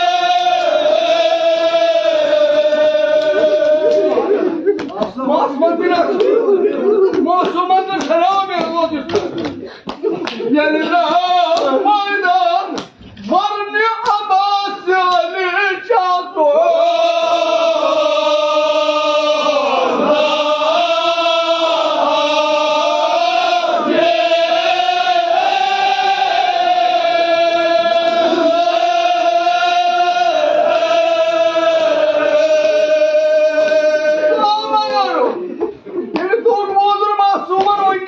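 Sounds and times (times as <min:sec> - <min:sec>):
man chanting: 0:10.4 - 0:17.3.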